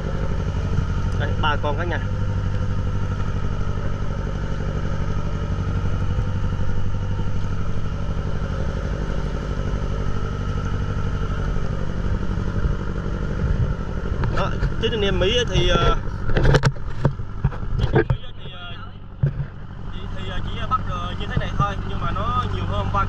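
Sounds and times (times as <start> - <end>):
boat engine running: 0.0 - 23.0.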